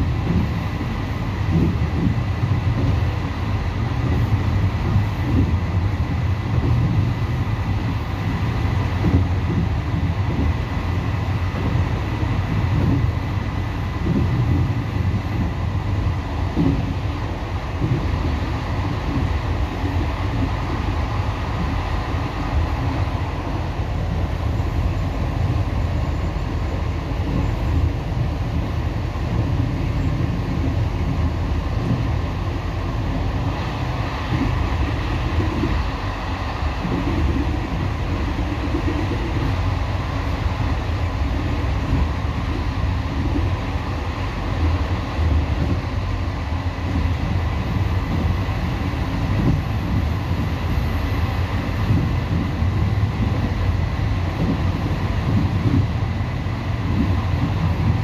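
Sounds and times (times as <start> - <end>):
train wheels rumbling on rails: 0.0 - 58.0.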